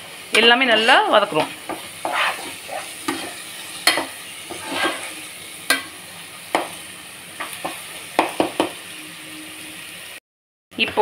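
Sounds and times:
light sizzle: 0.0 - 10.2
spatula scraping a pan: 0.3 - 6.8.

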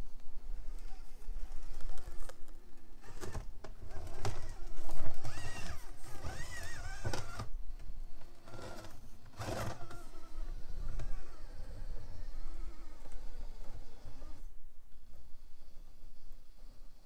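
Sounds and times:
electric motor whining: 3.0 - 7.6, 8.2 - 14.6.

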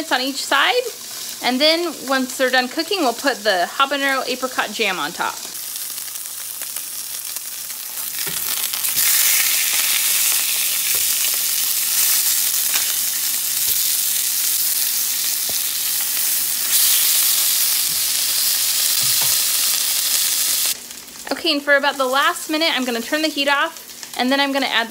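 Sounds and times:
meat sizzling in a frying pan: 0.0 - 24.9.

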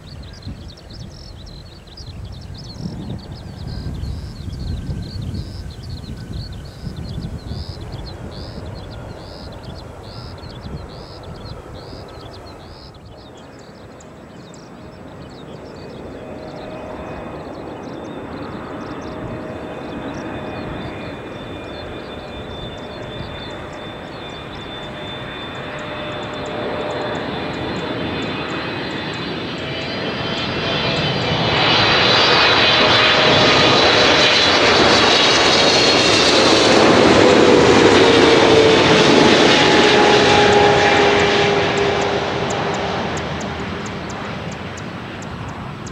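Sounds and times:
airliner jet engines approaching: 0.0 - 45.9
high fan whine: 32.6 - 45.9.

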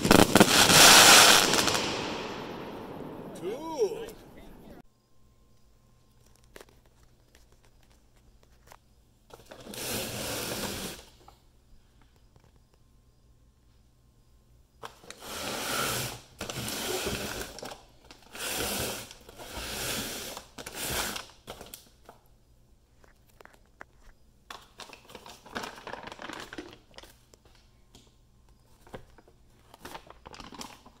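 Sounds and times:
cardboard clicks and crinkles: 6.1 - 9.6, 28.7 - 31.0.

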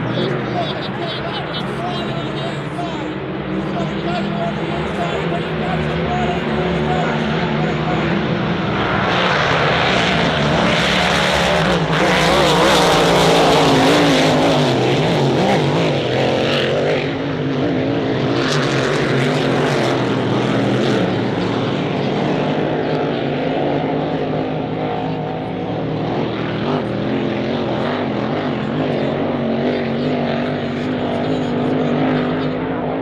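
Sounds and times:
racing boat engine passing: 0.0 - 33.0.

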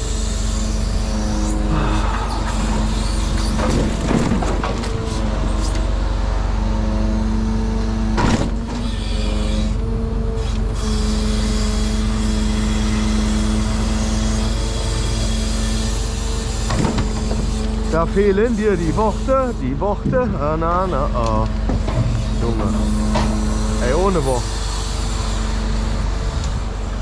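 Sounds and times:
truck engine running: 0.0 - 27.0
wood clattering: 20.0 - 20.5.

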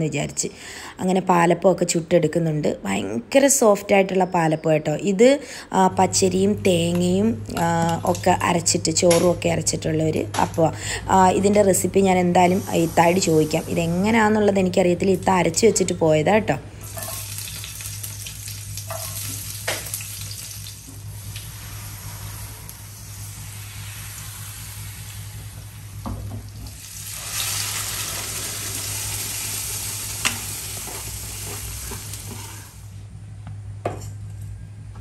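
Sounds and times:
batter sizzling in pan: 16.8 - 33.0.

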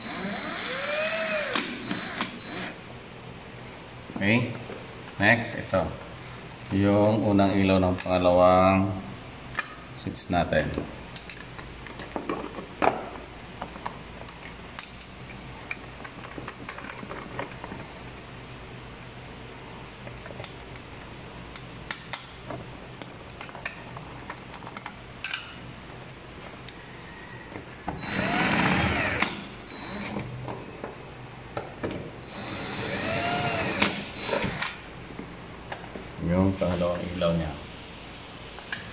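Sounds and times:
cordless drill driving screws: 0.0 - 2.8, 28.0 - 30.2, 32.3 - 34.8.

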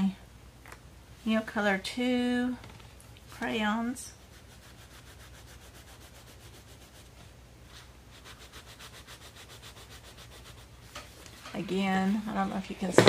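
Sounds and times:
crayon scribbling on paper: 4.2 - 7.1, 8.1 - 10.8.

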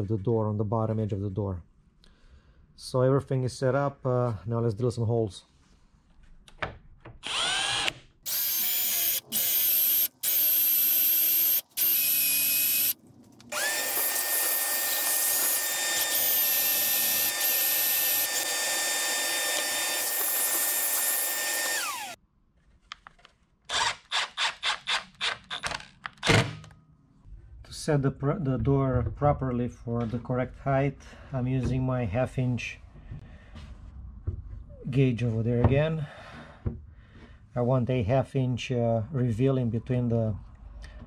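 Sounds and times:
cordless drill whining: 7.2 - 22.2, 23.7 - 26.3.

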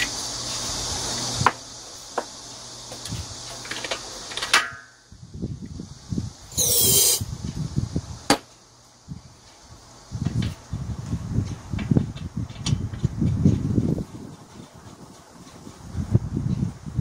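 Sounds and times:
recoil starter whirring zip: 6.5 - 7.3.

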